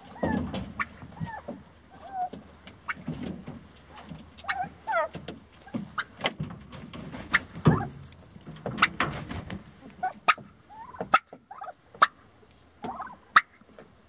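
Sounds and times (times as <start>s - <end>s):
soft turkey calls: 0.0s - 6.2s, 9.9s - 13.9s.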